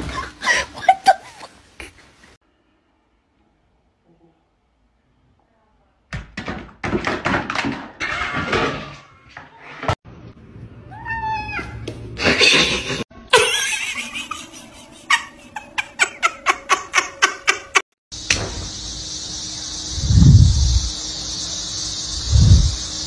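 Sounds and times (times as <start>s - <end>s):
cats calling: 10.9s - 11.8s.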